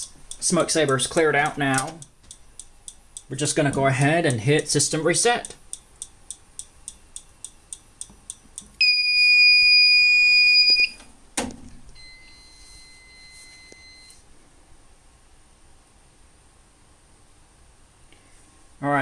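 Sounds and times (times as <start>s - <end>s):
steady high beep: 8.8s - 11.0s.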